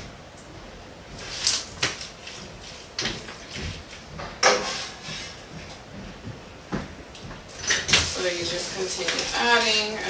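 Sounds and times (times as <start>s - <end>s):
utensil scraping foil pan: 4.4s - 5.4s.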